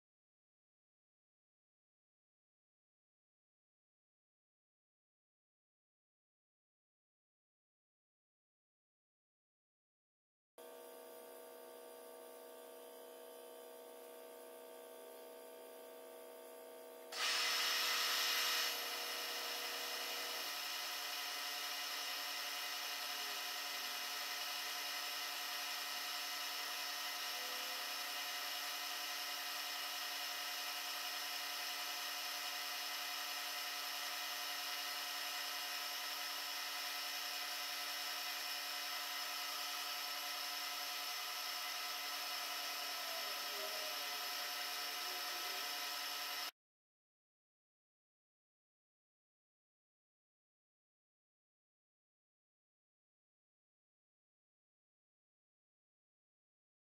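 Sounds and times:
milling machine whining: 0:17.2 - 0:46.5.

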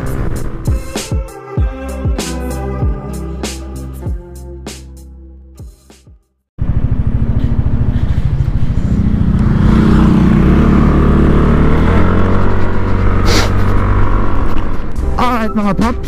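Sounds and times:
scooter engine running: 0:06.6 - 0:14.9.

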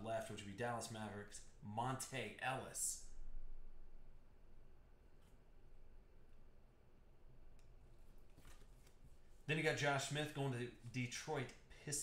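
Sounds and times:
faint background hiss: 0:00.0 - 0:12.0
low hum: 0:03.0 - 0:07.6.

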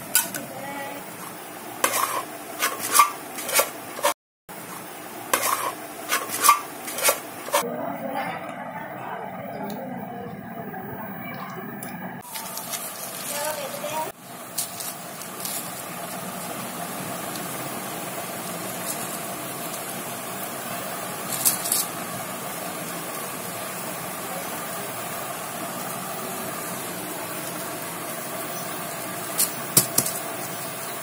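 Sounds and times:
steady humming hiss: 0:08.9 - 0:31.0
plastic sheet crinkling: 0:12.2 - 0:16.3.

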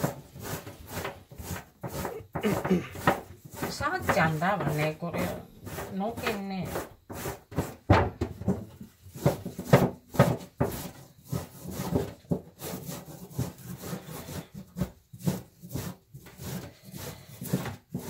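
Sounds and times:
scrubber rasping on root: 0:00.0 - 0:07.8, 0:09.1 - 0:18.0.

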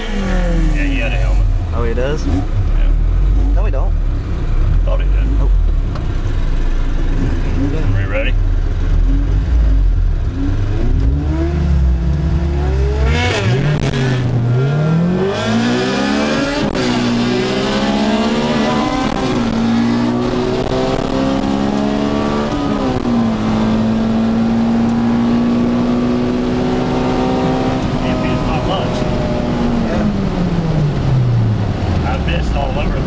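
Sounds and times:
car engine accelerating: 0:00.0 - 0:33.0.

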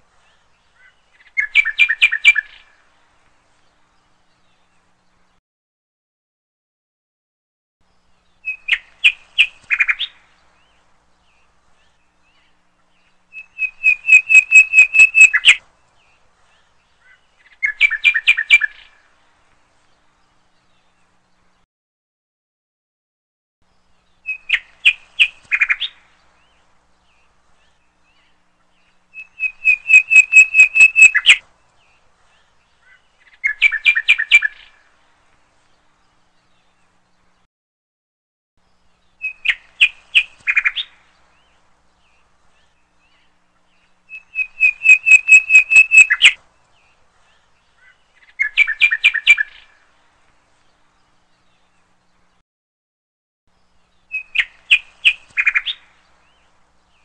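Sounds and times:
bird chirping rapidly: 0:01.1 - 0:02.6, 0:13.3 - 0:15.6, 0:17.4 - 0:18.8, 0:27.9 - 0:31.4, 0:32.9 - 0:34.8, 0:39.2 - 0:41.0, 0:43.2 - 0:46.4, 0:47.8 - 0:49.7, 0:54.0 - 0:55.9.

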